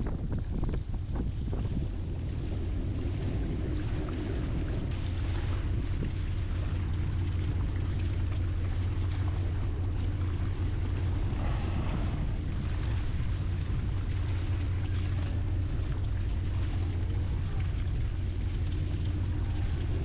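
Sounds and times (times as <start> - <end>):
boat engine humming: 0.0 - 20.0
choppy water: 0.0 - 20.0
wind: 0.0 - 20.0.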